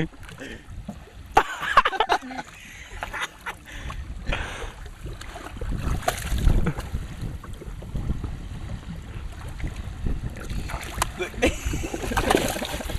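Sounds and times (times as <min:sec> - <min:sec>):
wind on microphone: 0:03.7 - 0:12.9.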